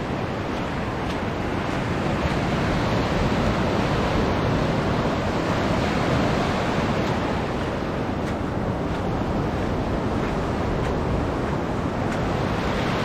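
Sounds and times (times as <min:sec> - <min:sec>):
sea surf washing on shore: 0:00.0 - 0:13.0.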